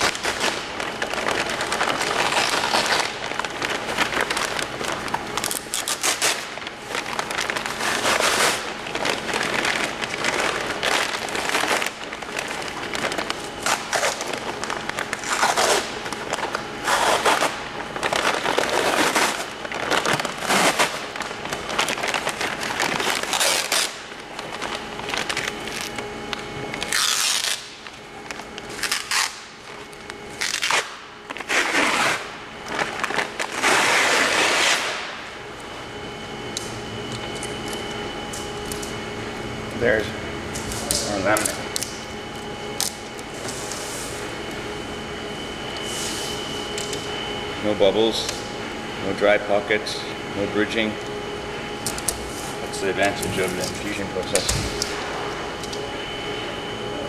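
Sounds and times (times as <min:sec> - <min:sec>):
fabric tearing off with crackling: 0:00.0 - 0:26.0, 0:26.8 - 0:27.9, 0:28.7 - 0:29.8, 0:30.4 - 0:35.1.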